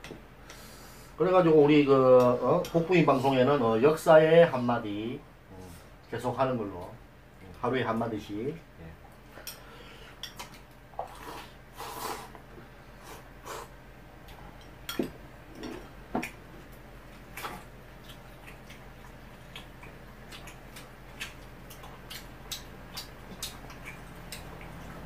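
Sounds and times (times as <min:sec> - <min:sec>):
chewing and smacking: 0:10.2 - 0:11.4, 0:15.6 - 0:25.0.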